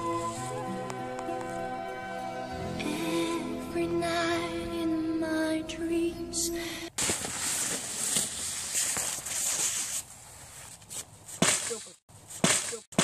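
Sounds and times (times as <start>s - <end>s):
stick whacking trees: 7.0s - 10.1s, 10.7s - 13.0s
branches rustling and swishing: 7.0s - 12.9s.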